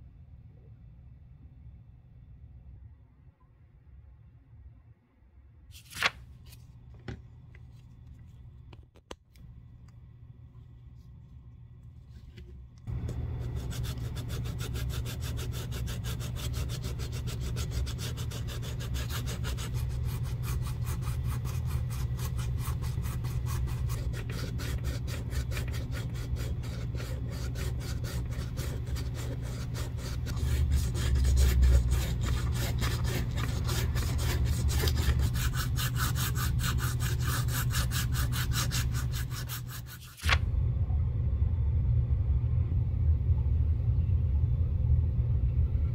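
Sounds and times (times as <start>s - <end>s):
sandpaper rubbing on leather: 13.2s - 40.2s.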